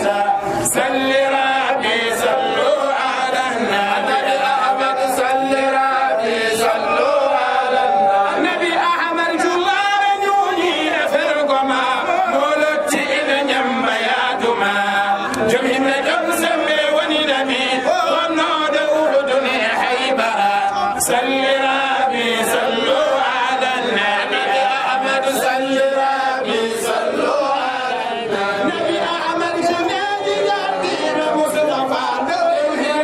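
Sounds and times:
men chanting in unison: 0.0 - 33.0
person singing into a microphone: 0.0 - 33.0.

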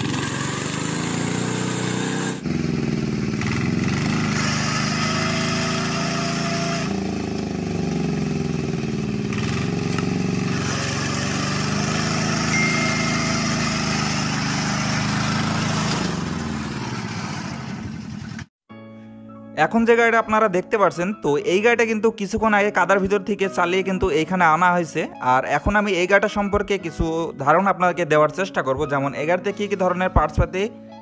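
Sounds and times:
diesel engine working hard: 0.0 - 18.5.

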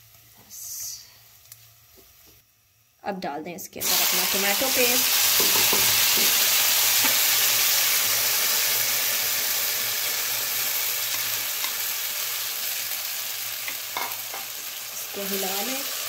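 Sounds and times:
paste sizzling in hot oil: 3.8 - 16.0.

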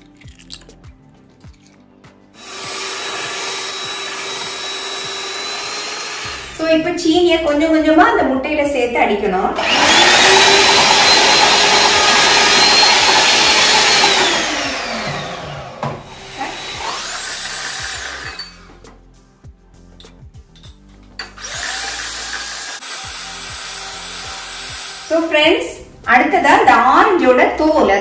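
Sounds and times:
electric hand mixer motor: 2.4 - 6.8, 9.6 - 18.8, 21.4 - 25.3.

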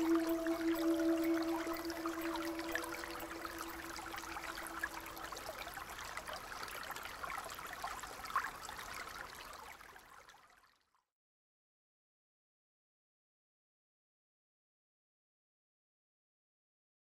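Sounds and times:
brook babbling over stones: 0.0 - 10.7.

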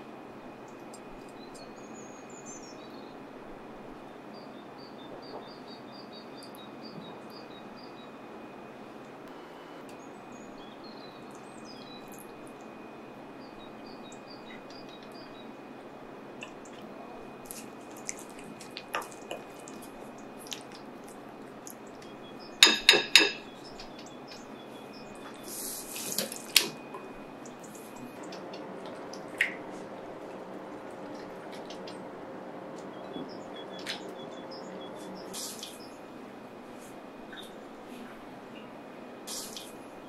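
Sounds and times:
utensil stirring wet marinade: 16.4 - 34.3
utensil clinking against glass: 22.6 - 23.9.

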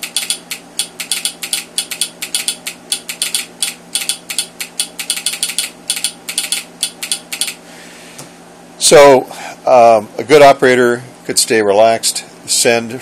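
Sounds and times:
telegraph sounder clacking morse code: 0.0 - 7.6
steady low hum: 0.0 - 13.0.

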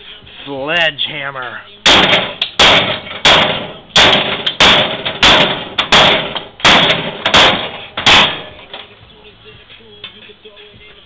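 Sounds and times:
sledgehammer smashing microwave: 1.8 - 8.9.

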